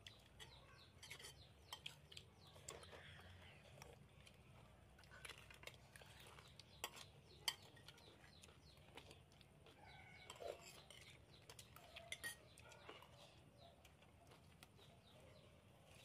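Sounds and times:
spoons clinking on plates: 0:00.3 - 0:02.0, 0:06.8 - 0:08.0, 0:10.1 - 0:12.6.

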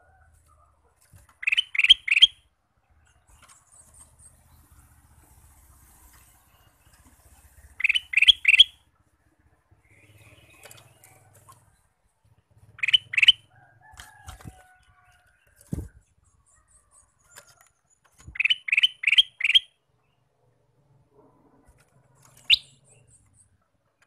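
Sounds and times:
bird giving sharp calls: 0:01.4 - 0:02.4, 0:07.6 - 0:08.9, 0:12.6 - 0:13.5, 0:18.3 - 0:19.8.

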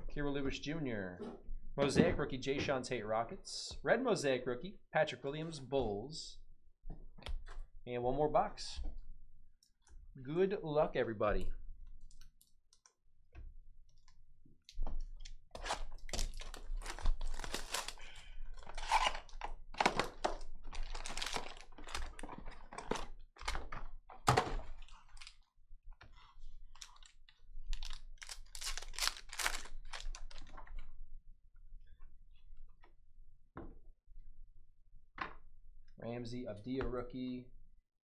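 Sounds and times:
card packs crinkling and tearing: 0:15.6 - 0:23.8, 0:24.5 - 0:25.4, 0:26.7 - 0:30.7.

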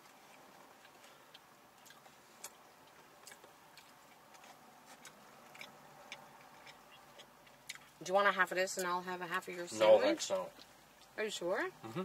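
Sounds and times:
quiet chewing: 0:00.0 - 0:08.0, 0:10.3 - 0:11.2.

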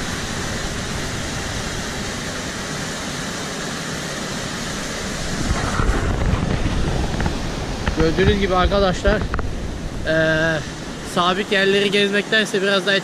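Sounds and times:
stream rushing over rocks: 0:00.0 - 0:13.0
low microphone rumble: 0:05.0 - 0:11.1.

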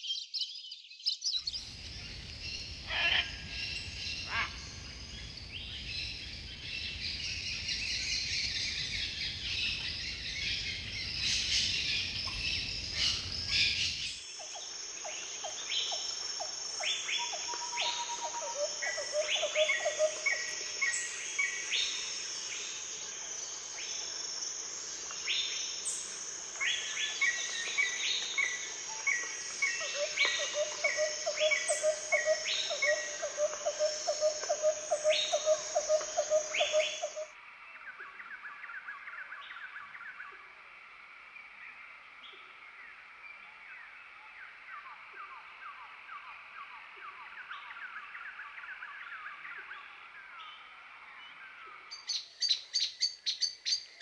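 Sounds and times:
high insect drone: 0:01.5 - 0:37.4
birds calling: 0:26.6 - 0:37.3.

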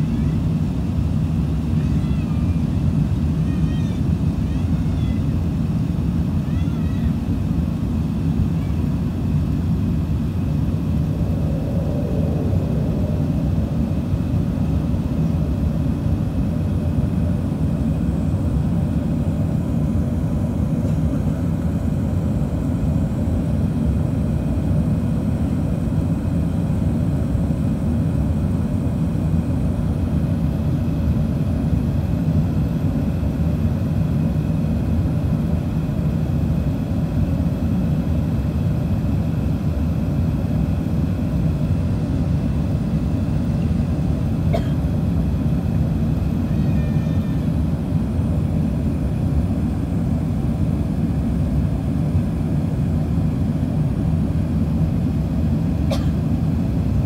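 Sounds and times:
aircraft engine rumble: 0:00.0 - 0:57.0.

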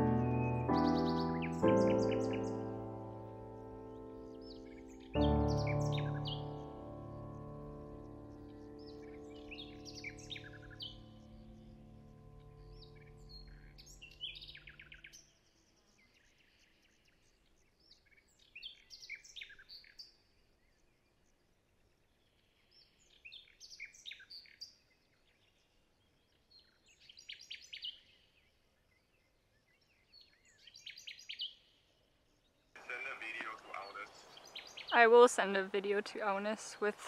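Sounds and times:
soft sustained music: 0:00.0 - 0:17.6
songbirds chirping: 0:00.0 - 0:37.0.

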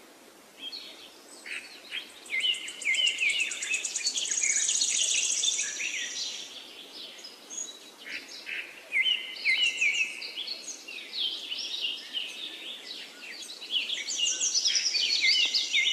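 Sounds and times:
birds chirping and singing: 0:00.6 - 0:15.9.

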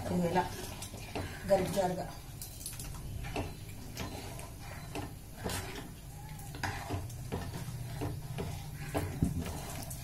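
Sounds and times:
metal spoon scraping a pot: 0:00.0 - 0:10.0.

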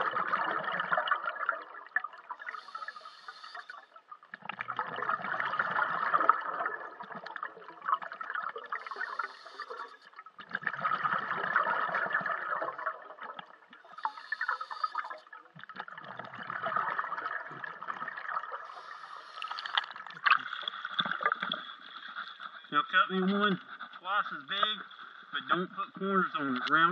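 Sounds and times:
hissing regulator inhalation: 0:02.4 - 0:03.9, 0:08.7 - 0:10.2, 0:13.8 - 0:15.3, 0:18.6 - 0:19.9.

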